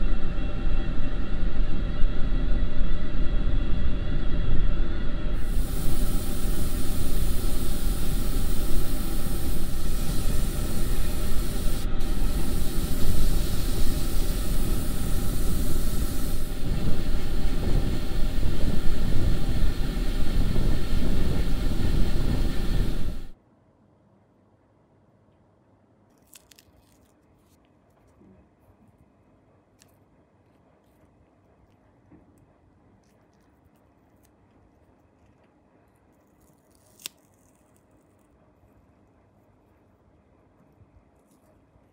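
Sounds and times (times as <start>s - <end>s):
low motor hum: 0.0s - 23.4s
airbrush air hiss: 5.2s - 23.4s.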